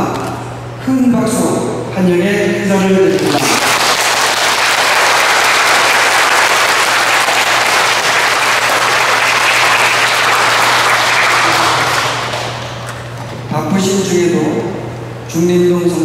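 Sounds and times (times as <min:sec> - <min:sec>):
crowd applauding: 0:03.2 - 0:13.1.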